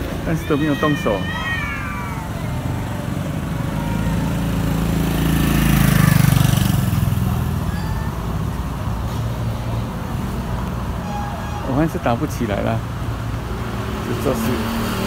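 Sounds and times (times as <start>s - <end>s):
vehicle engine passing by: 2.0s - 10.6s, 13.0s - 15.0s.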